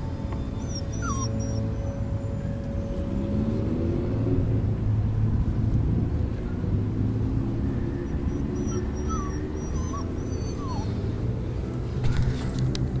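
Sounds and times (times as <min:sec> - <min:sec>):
puppy whimpering: 0:00.1 - 0:03.0, 0:08.1 - 0:11.2.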